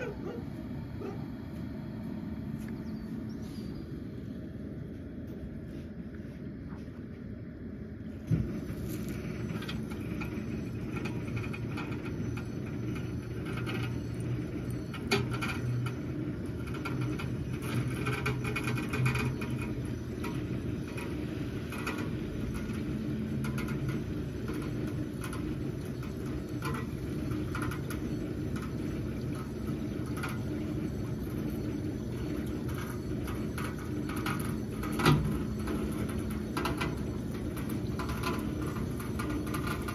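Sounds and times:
vehicle engine running: 0.0 - 39.9
tyres crunching on gravel: 8.3 - 9.9.

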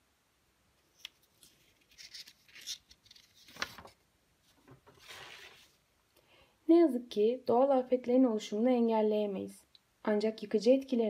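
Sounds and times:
paper rustling and sliding: 1.0 - 5.8.

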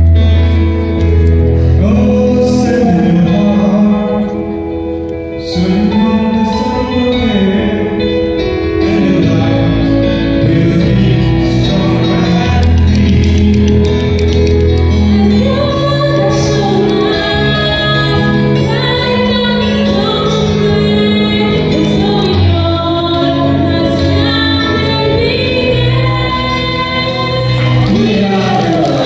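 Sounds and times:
instrumental accompaniment: 0.0 - 29.0
woman singing: 14.9 - 29.0.

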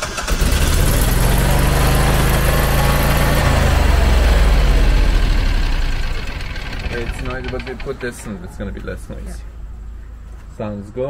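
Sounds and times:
generator engine running: 0.0 - 10.2.

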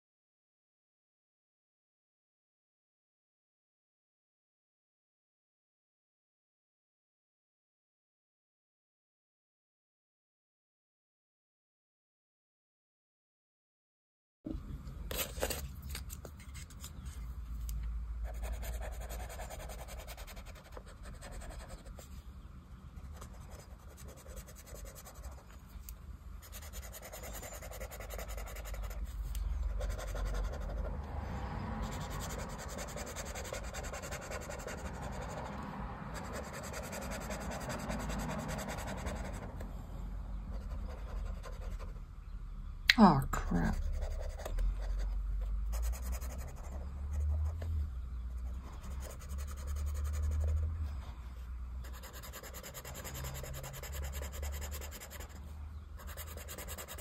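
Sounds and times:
felt-tip pen scratching on paper: 51.8 - 55.4, 56.0 - 57.0.

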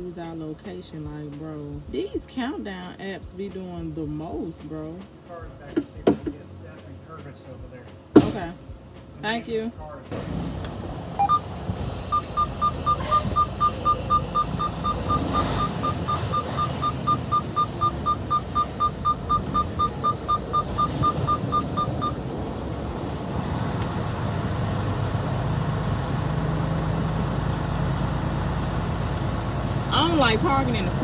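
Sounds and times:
rapid electronic warning beeps: 11.2 - 22.2.

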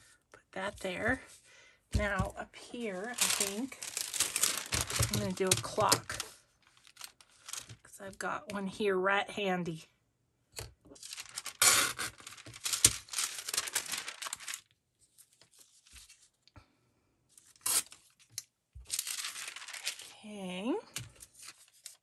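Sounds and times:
paper tearing: 3.0 - 7.7, 11.0 - 14.7, 17.5 - 18.0, 18.9 - 20.1.

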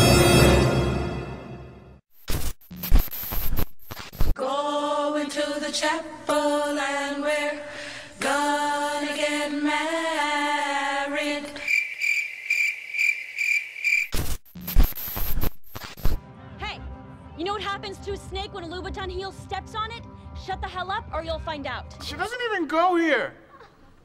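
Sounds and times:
crickets chirping: 11.6 - 15.9.

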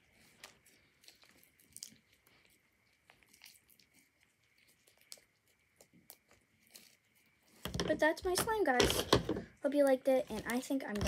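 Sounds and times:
faint small clicks and crackles: 0.0 - 8.8.

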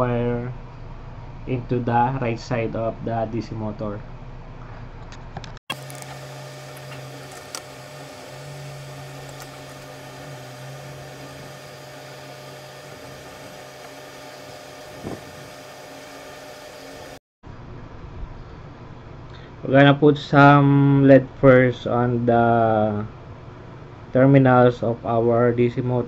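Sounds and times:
steady low hum: 5.7 - 25.7
room noise hiss: 5.8 - 17.2.

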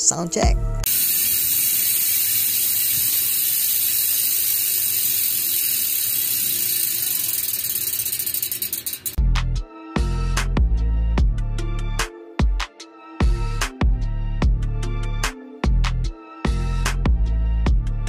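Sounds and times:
music: 0.0 - 0.9, 9.2 - 18.0
bicycle hub freewheeling clicks: 0.8 - 9.2.

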